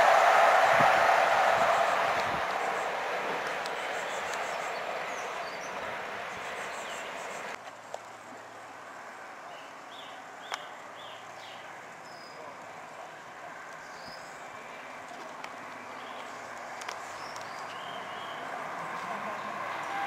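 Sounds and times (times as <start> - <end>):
train rumble: 0.0 - 9.4, 17.7 - 20.0
birds chirping: 1.3 - 7.6, 15.7 - 18.6.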